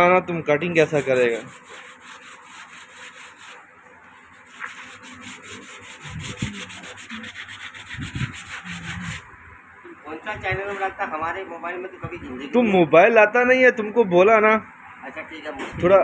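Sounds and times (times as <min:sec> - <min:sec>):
sanding pad rubbing back and forth: 0:00.8 - 0:09.3.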